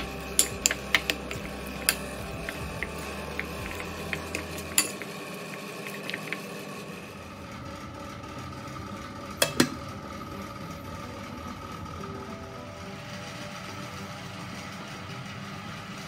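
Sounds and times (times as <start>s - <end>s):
metal spoon scraping ceramic bowl: 0.0s - 5.2s
steady hum: 0.0s - 16.0s.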